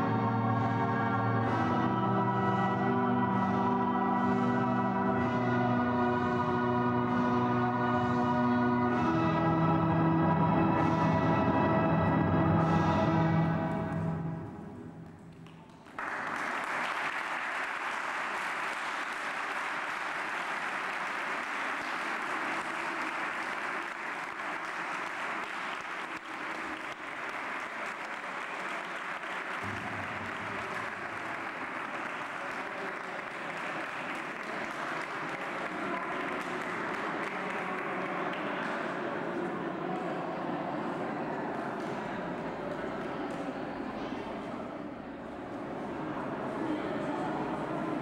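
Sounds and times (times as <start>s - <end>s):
audience applauding: 15.0s - 40.1s.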